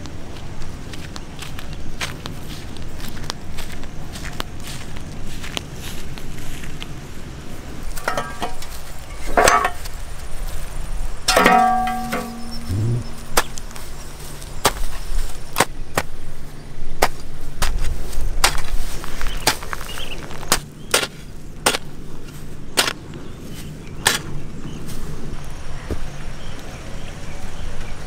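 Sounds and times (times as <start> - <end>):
hoe chopping into soil: 14.6 - 16.1, 17.0 - 22.0, 22.7 - 23.0, 23.6 - 24.4.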